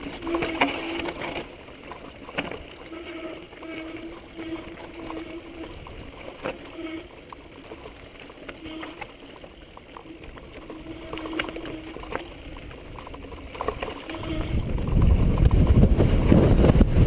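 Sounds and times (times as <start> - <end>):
buzzing tone: 0.0 - 1.2, 2.8 - 7.2, 8.5 - 9.1, 10.0 - 12.5, 13.9 - 14.9
wind: 0.0 - 17.0.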